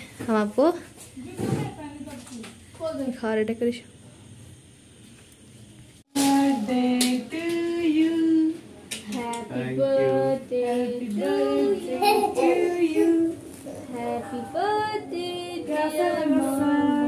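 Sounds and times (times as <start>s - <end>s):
women and girls singing: 6.1s - 17.0s.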